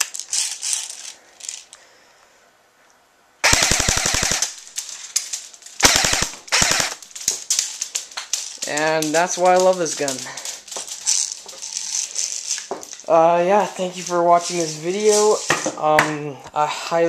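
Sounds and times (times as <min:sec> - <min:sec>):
gun handling rattle: 0:00.0 - 0:01.8, 0:03.9 - 0:15.7
airsoft gun automatic fire: 0:03.4 - 0:04.8, 0:05.8 - 0:07.1.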